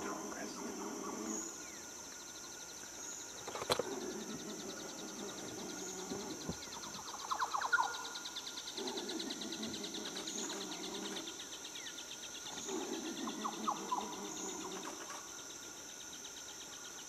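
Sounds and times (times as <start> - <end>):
small birds chirping: 0.0 - 15.4
insect trill: 0.0 - 17.0
sharp click: 3.4 - 3.9.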